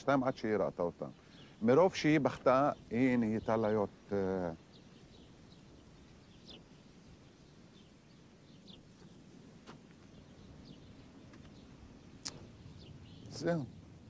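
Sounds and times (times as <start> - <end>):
low steady background noise: 0.0 - 14.0
high bird chirps: 1.1 - 9.3, 10.0 - 14.0.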